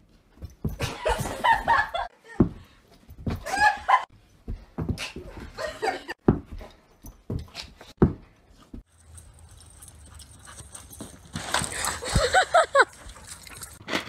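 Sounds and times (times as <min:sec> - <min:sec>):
dog noises during play: 0:08.5 - 0:12.0.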